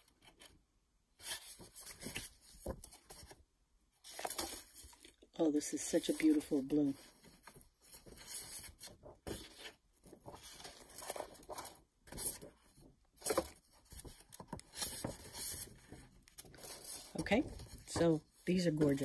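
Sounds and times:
paper sheets rustling and sliding: 0:04.0 - 0:05.0, 0:05.7 - 0:12.5, 0:13.2 - 0:19.0.

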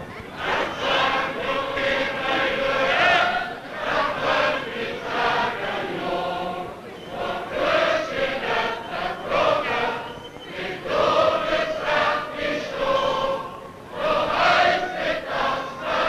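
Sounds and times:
choir singing long notes: 0:00.0 - 0:16.0.

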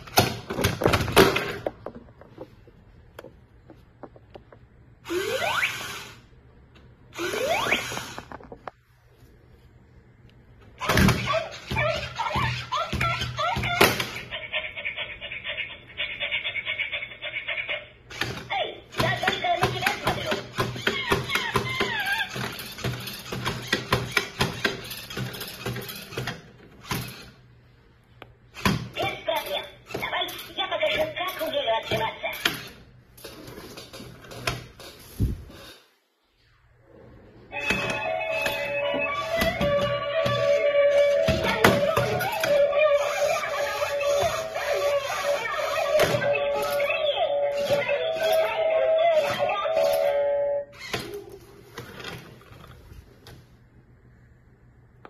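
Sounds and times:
toy robot gear motors whirring: 0:05.0 - 0:06.2, 0:07.1 - 0:08.4, 0:19.0 - 0:27.4, 0:38.1 - 0:50.1, 0:50.8 - 0:51.0.

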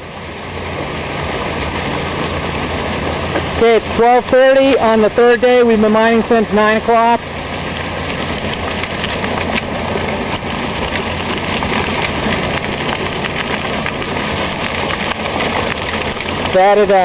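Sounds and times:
engine-driven pump running: 0:00.0 - 0:17.0
rush of water and gravel: 0:00.0 - 0:17.0
stones rattling through pipe: 0:07.7 - 0:17.0.

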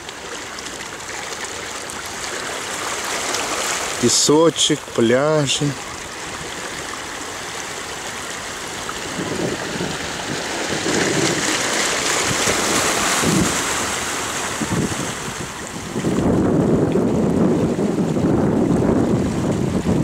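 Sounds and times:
surf washing on beach: 0:00.0 - 0:20.0
wind rumbling on microphone: 0:07.8 - 0:20.0.

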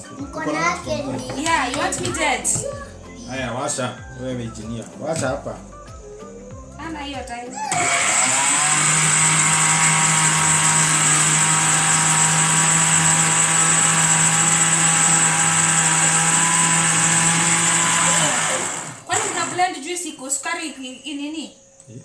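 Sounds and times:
blender motor humming: 0:07.7 - 0:19.7.

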